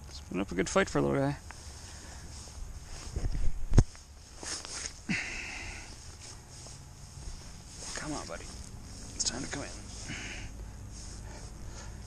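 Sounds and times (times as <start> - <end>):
clothing rustling: 1.6 - 5.1, 5.9 - 10.2.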